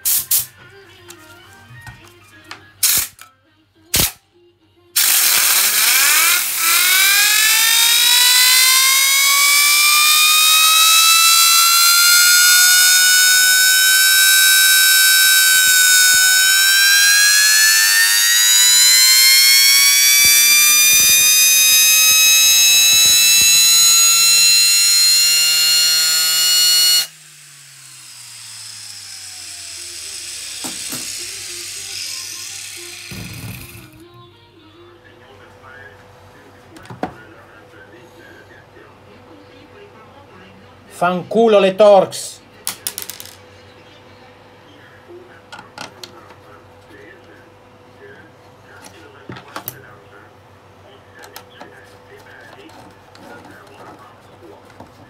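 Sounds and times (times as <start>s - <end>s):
fan impeller whining: 5.0s - 34.1s
fan coasting down hum: 5.8s - 34.1s.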